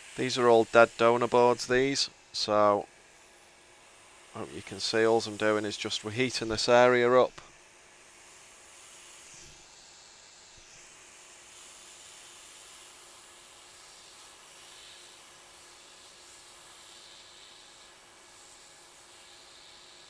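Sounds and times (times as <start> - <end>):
hot-air gun hissing: 0.0 - 20.0.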